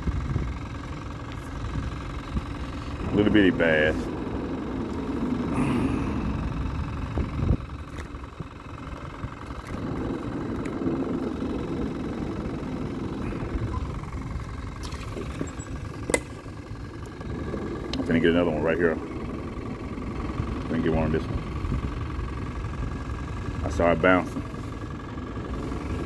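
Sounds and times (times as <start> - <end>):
traffic rumble on bridge: 0.0 - 26.0.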